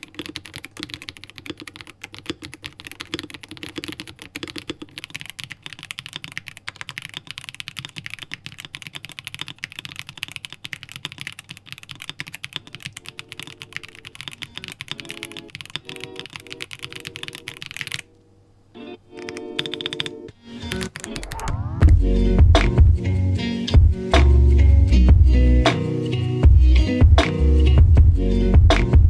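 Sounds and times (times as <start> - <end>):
fast mechanical keyboard typing: 0.0 - 18.1, 19.2 - 21.5
soft background music: 13.0 - 17.6.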